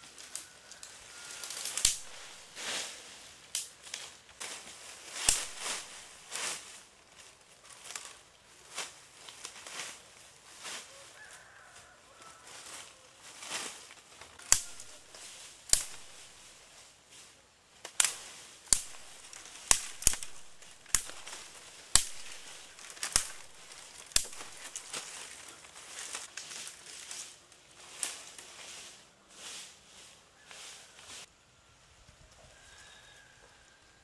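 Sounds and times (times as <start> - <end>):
sharp cracks or knocks: 5.2 - 5.9, 17.8 - 25.2.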